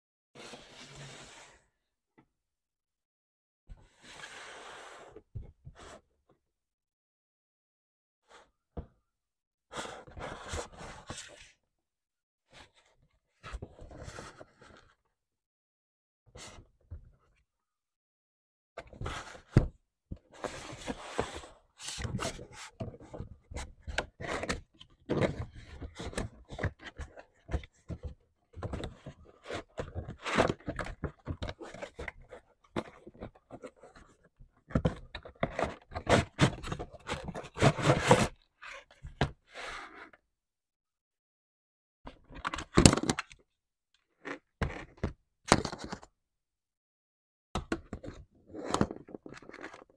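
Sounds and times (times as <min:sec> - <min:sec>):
cardboard box scraping and rustling: 0:35.4 - 0:38.4.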